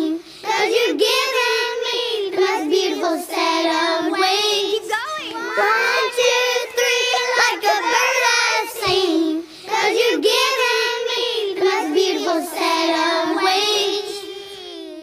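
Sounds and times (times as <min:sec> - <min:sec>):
high voice singing slow melody: 0:10.9 - 0:15.0.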